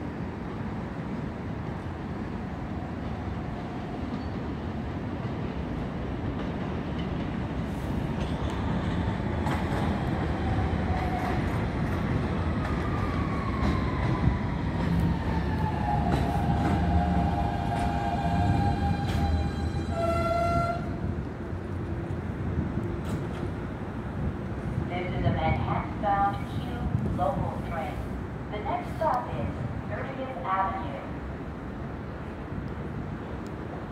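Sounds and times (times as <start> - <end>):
train wheels rumbling on rails: 0.0 - 30.3.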